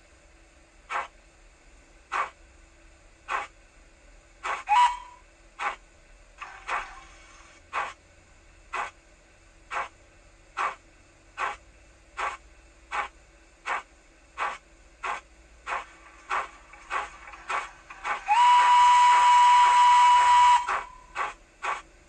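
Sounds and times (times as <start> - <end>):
faint steady hum: 0.0 - 22.0
model steam locomotive chuffing: 0.0 - 22.0.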